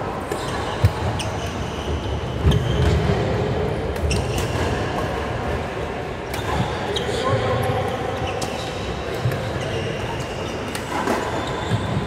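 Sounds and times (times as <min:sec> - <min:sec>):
echoing sports hall noise: 0:00.0 - 0:12.0
rackets hitting shuttlecock: 0:10.6 - 0:12.0.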